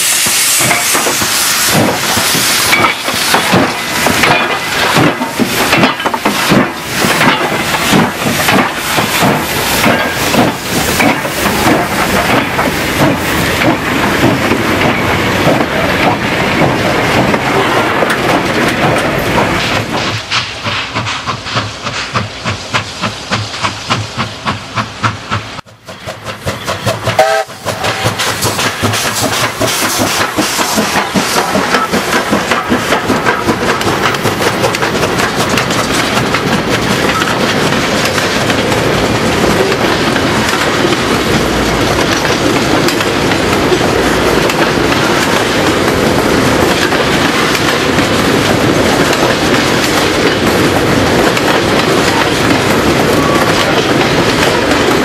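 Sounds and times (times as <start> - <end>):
steam locomotive exhaust chuffs: 0.0 - 55.0
clanking rods and wheels: 0.2 - 55.0
wheels clattering over rail joints: 1.8 - 22.5, 24.4 - 55.0
steam whistle blast: 27.2 - 28.1.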